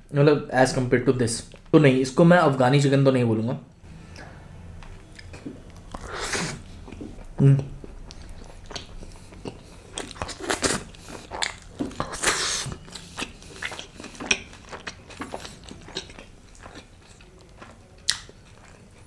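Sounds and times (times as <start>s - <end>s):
close chewing: 4.1s - 19.0s.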